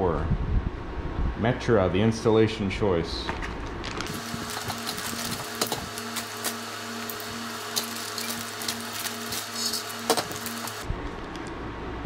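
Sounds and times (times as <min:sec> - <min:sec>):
steady low hum: 0:00.0 - 0:12.0
plastic packaging rustling: 0:03.8 - 0:10.9.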